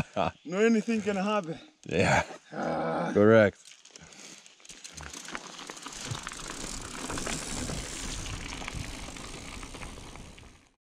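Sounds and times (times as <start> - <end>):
bike rattles and clicks: 3.6 - 10.8
bike tyres crunching on trail: 3.6 - 10.8.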